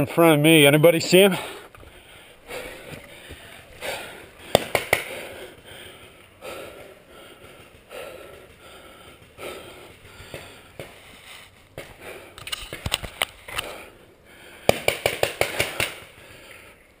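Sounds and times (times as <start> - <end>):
person breathing close to microphone: 1.3 - 12.8, 13.4 - 14.9, 15.5 - 17.0
sharp cracks: 3.8 - 5.4, 11.7 - 13.8, 14.6 - 16.3.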